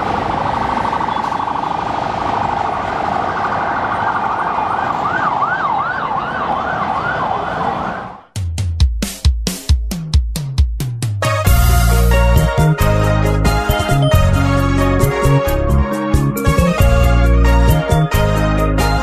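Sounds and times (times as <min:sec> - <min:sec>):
emergency vehicle siren: 0:00.0 - 0:08.3
road traffic noise: 0:00.0 - 0:08.4
drum beat: 0:08.4 - 0:11.9.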